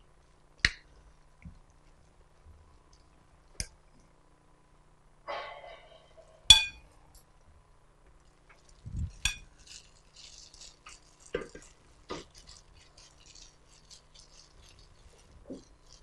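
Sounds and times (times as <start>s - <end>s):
glass bowl clink: 5.3s - 6.8s, 9.2s - 9.5s
plastic gloves rustling: 8.2s - 16.0s.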